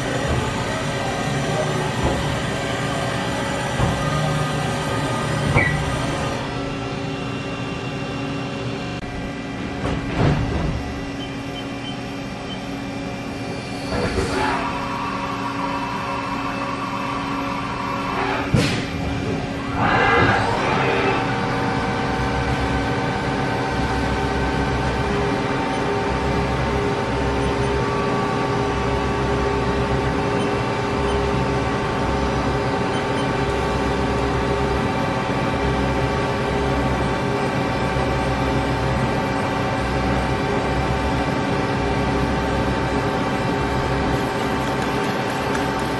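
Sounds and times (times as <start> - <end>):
shop machinery hissing: 0.0 - 9.0, 42.1 - 45.9
high motor whine: 0.0 - 9.7
low machinery rumble: 0.0 - 45.9.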